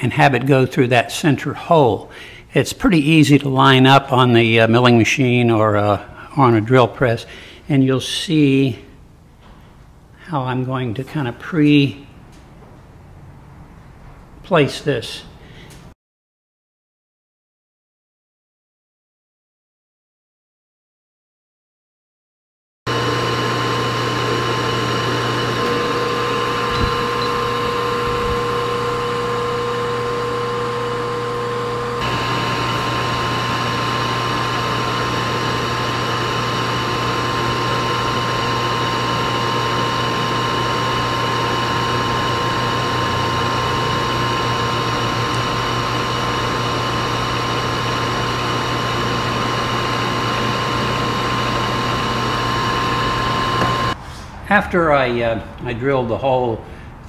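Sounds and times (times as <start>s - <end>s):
milling machine drilling plastic: 22.9s - 54.0s.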